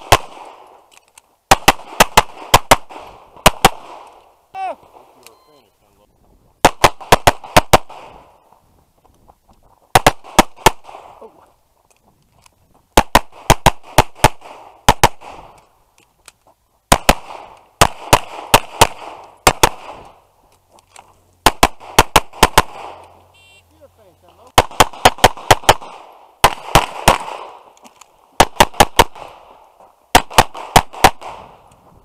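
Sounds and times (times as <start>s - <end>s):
pistol firing rapid shots: 0.0s - 0.7s, 1.5s - 4.1s, 6.6s - 8.2s, 9.9s - 11.2s, 13.0s - 15.5s, 16.9s - 20.1s, 21.4s - 23.0s, 24.5s - 27.7s, 28.4s - 29.5s, 30.1s - 31.5s.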